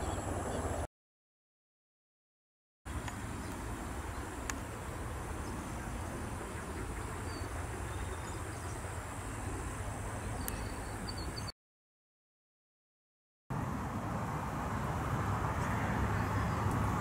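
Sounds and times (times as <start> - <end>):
low rumble of wind: 0.0 - 0.9, 2.9 - 11.5, 13.5 - 17.0.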